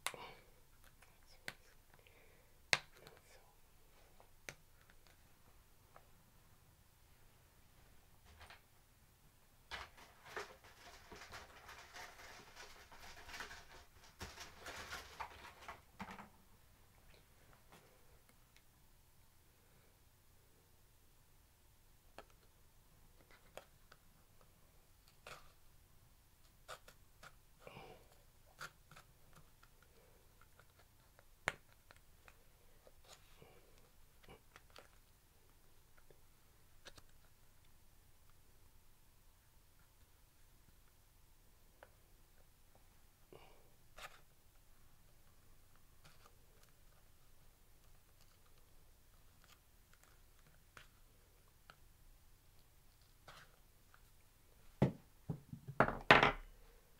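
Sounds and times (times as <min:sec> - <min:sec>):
faint rustling: 0:09.7 - 0:16.0.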